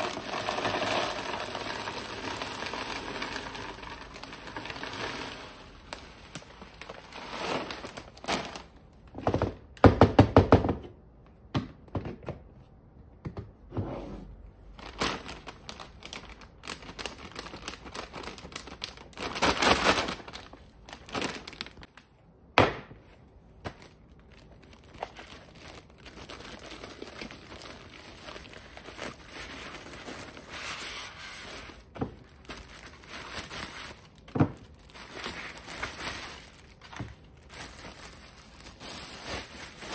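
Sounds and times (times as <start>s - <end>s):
granola rattling into plastic container: 0.0s - 6.0s
plastic bag crinkling: 0.0s - 9.0s, 14.7s - 22.0s, 23.7s - 39.9s.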